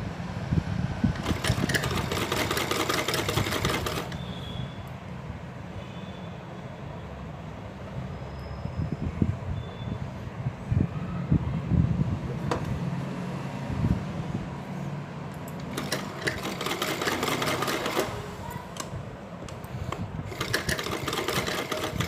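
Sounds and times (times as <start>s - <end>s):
sewing machine stitching: 1.2s - 4.3s, 15.6s - 18.3s, 20.3s - 22.0s.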